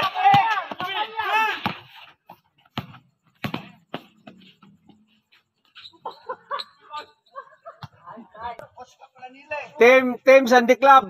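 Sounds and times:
players calling out: 0.0 - 2.2
basketball bouncing on concrete: 0.0 - 5.0.

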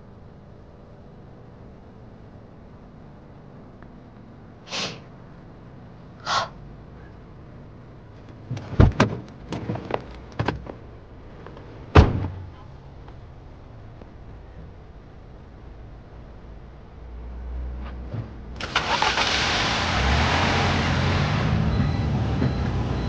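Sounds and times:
car door clicks and knocks: 8.5 - 10.8, 11.9 - 12.4
car door slamming shut: 8.6 - 9.7, 11.9 - 12.5.

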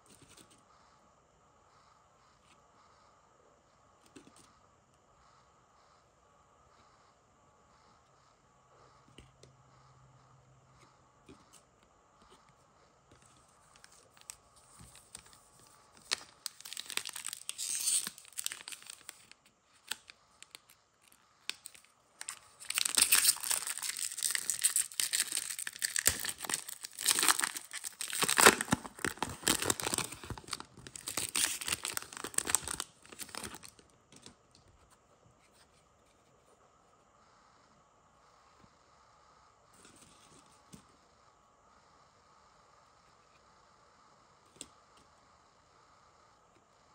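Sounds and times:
foil wrapper tearing and crinkling: 16.0 - 20.6, 21.5 - 33.8.

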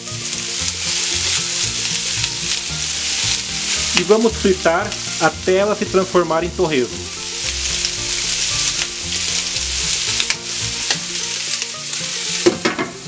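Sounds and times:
pork sizzling in a pan: 0.0 - 13.0
glass lid knocking on pan: 12.5 - 13.0.

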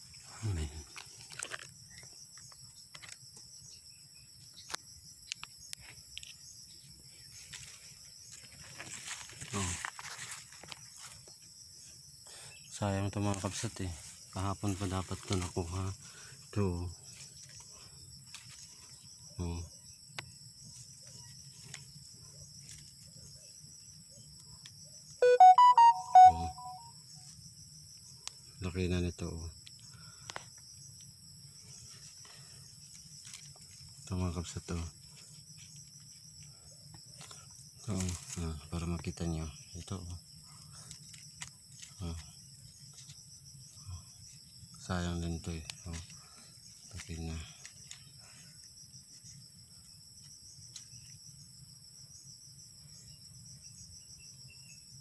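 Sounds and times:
twigs and leaves rustling: 0.0 - 3.6, 5.8 - 12.1, 13.0 - 19.5, 20.2 - 24.8, 29.6 - 51.4
crickets chirring: 0.0 - 55.0
insect chorus: 0.0 - 55.0
electronic jingle: 25.2 - 26.8.

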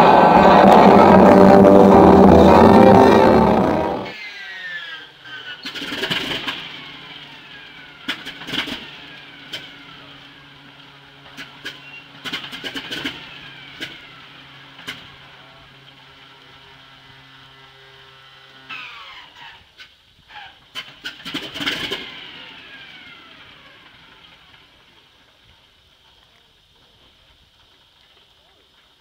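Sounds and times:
radial engine turning over: 0.0 - 4.2
falling whines: 0.0 - 4.4.

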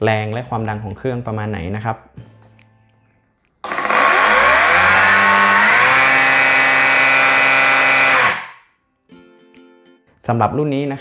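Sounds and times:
electric chainsaw whine: 3.6 - 8.6.

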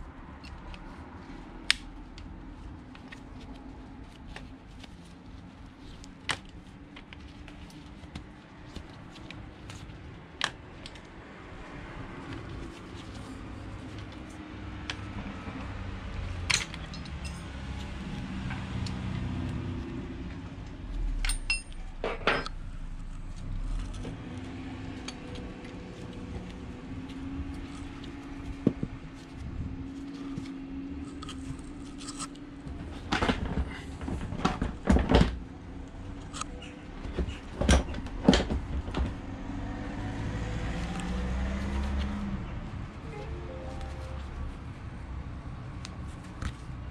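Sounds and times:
sharp metallic clinks and knocks: 16.5 - 17.6, 21.2 - 22.6.

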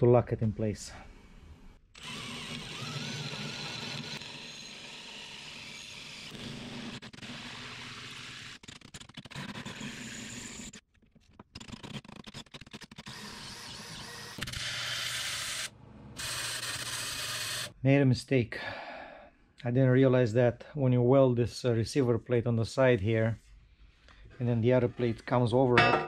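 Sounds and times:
drill boring through steel: 2.0 - 8.6, 13.0 - 17.7.

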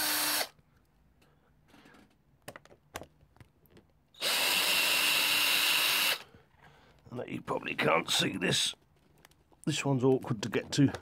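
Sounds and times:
cordless drill-driver running: 0.0 - 0.5, 4.2 - 6.2.

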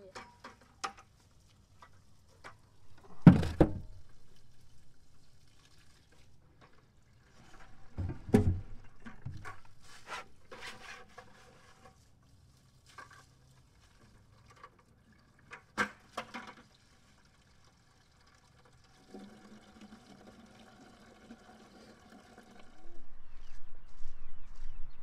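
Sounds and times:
water splashing from a bucket: 1.0 - 10.0, 12.0 - 22.8
bucket and handle knocks: 3.1 - 3.9.

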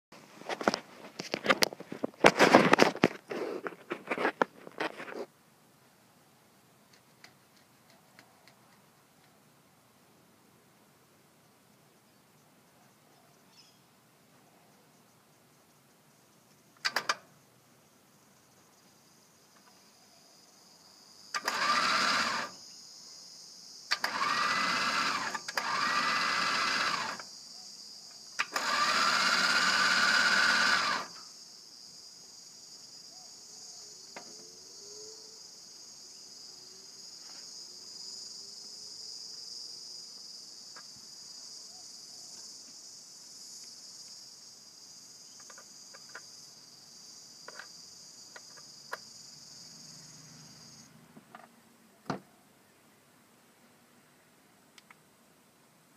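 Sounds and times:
insects chirring: 0.2 - 5.3, 11.4 - 52.8
electric winch motor whining: 21.4 - 22.6, 23.9 - 27.2, 28.4 - 31.2.

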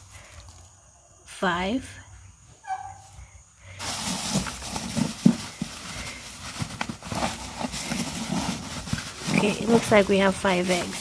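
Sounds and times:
wood shavings rustling and crunching: 0.0 - 0.8, 3.7 - 11.0.

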